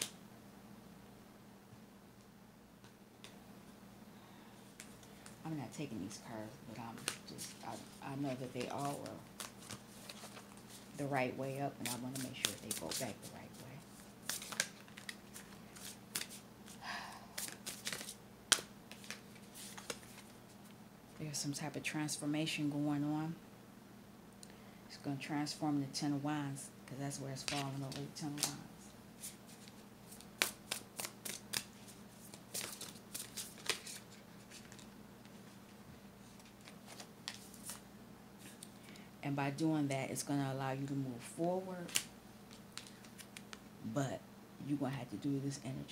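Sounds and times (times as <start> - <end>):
cards clicking and flicking: 14.2 - 16.8, 17.4 - 20.2, 29.6 - 31.7, 32.4 - 34.8
card snap: 17.4 - 20.0.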